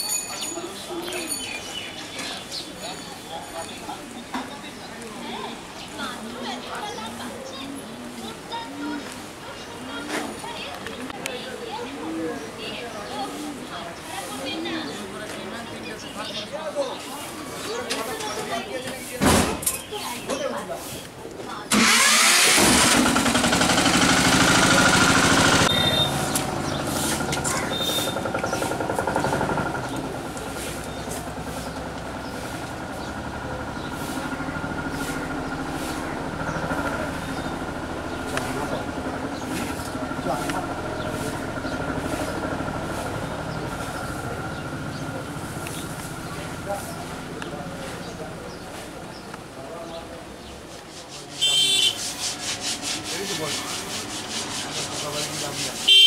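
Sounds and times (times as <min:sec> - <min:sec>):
rhythmic rasping scrape: 0:50.9 - 0:56.0.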